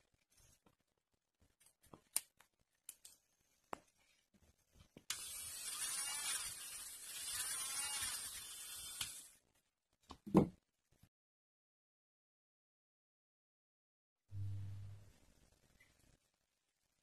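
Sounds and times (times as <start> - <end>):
electric nail drill whining: 5.1 - 9.3.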